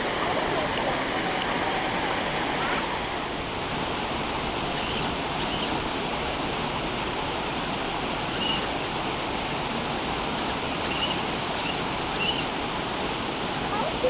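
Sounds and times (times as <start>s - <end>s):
water rushing: 0.0s - 14.0s
faint high chirps: 4.8s - 5.7s, 10.4s - 12.5s.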